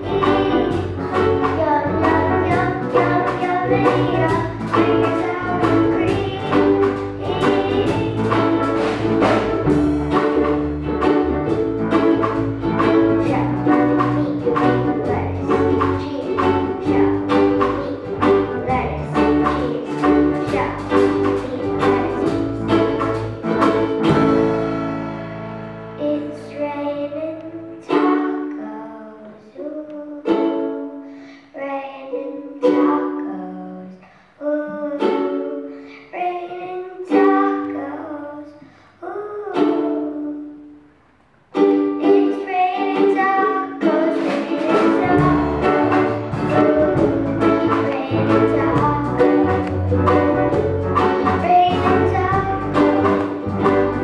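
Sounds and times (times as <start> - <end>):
ukulele strumming: 0.0 - 54.0
electric bass line: 45.0 - 54.0.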